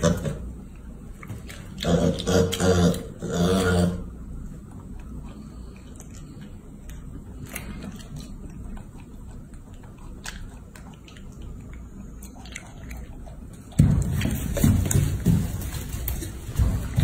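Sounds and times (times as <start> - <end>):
monkey chewing fruit: 4.6 - 17.0
thumps and rustling: 13.7 - 17.0.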